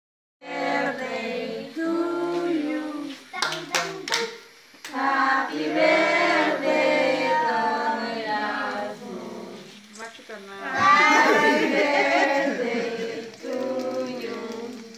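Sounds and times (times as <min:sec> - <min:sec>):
group singing a celebration song: 0:00.4 - 0:10.0, 0:10.6 - 0:14.9
sharp hand claps: 0:03.4 - 0:05.0.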